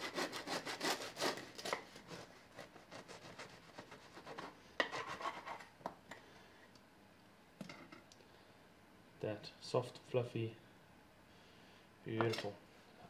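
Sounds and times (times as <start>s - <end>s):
knife sawing through bread crust: 0.0s - 5.7s.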